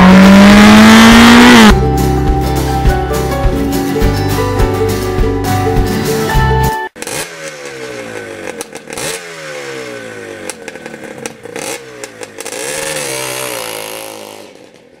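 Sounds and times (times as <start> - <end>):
motorcycle engine revving: 0.0 - 1.8, 7.0 - 15.0.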